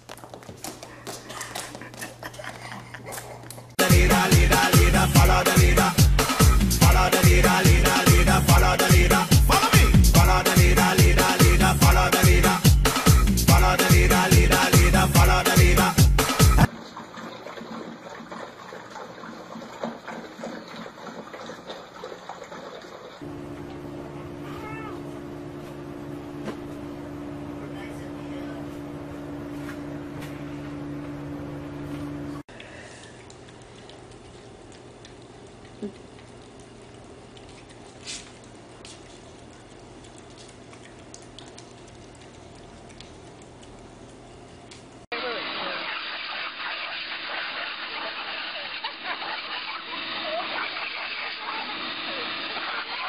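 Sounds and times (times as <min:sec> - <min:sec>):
puppies lapping and smacking: 0:00.0 - 0:03.8, 0:15.6 - 0:23.2, 0:32.5 - 0:45.1
loud music track: 0:03.8 - 0:16.7
pet chewing meat: 0:33.0 - 0:44.4.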